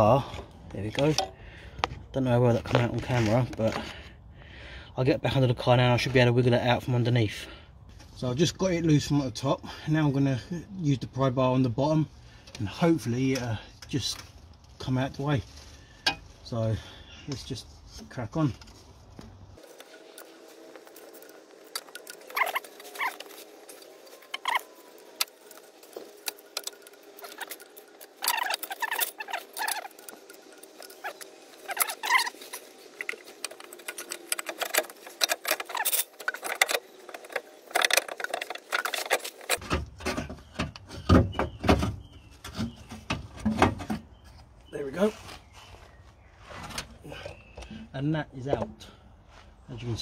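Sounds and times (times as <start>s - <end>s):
metal clinks knocks and scrapes: 18.5s - 44.0s
short squeaks: 21.0s - 39.6s.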